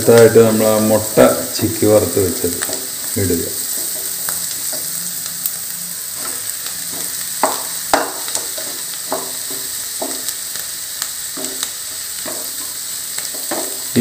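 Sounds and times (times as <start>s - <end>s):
vegetables and egg sizzling: 0.0s - 14.0s
wooden spatula knocking on pan: 6.2s - 10.4s, 11.3s - 13.9s.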